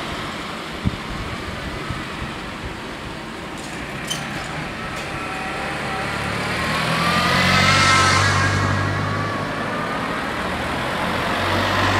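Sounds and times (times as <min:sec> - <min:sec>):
cars driving past: 0:03.2 - 0:11.9.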